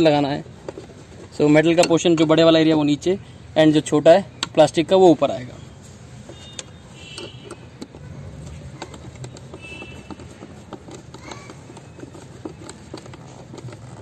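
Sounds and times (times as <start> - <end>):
clicks and taps of plastic parts: 4.3 - 4.8, 6.2 - 14.0.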